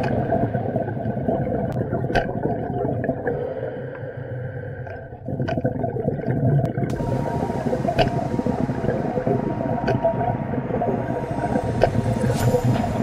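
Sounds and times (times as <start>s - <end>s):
low rough underwater rumble: 6.8s - 13.0s.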